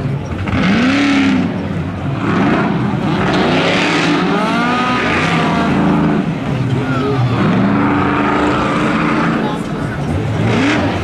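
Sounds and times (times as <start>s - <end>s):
racing car engines at full throttle: 0.0s - 11.0s.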